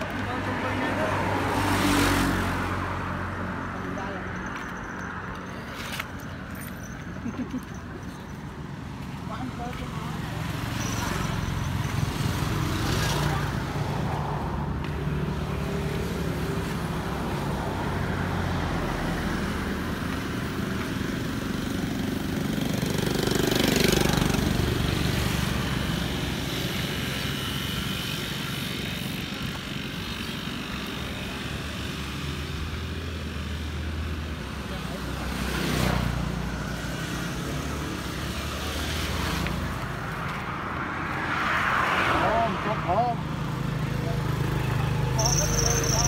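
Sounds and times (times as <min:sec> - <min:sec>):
motorbikes passing: 0:00.0 - 0:46.0
vehicle passing loudly: 0:35.2 - 0:46.0.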